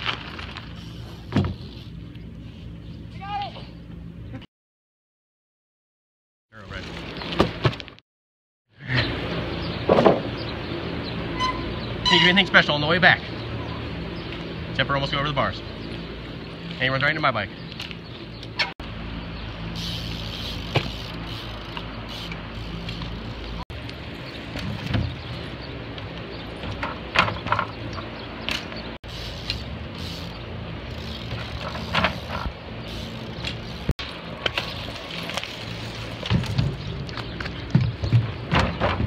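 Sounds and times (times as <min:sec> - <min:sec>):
bikes knocking on ramps: 0:00.0 - 0:01.8, 0:09.6 - 0:10.6, 0:19.8 - 0:39.0
bicycle tyres rolling: 0:00.0 - 0:03.3, 0:06.6 - 0:08.0, 0:09.1 - 0:39.0.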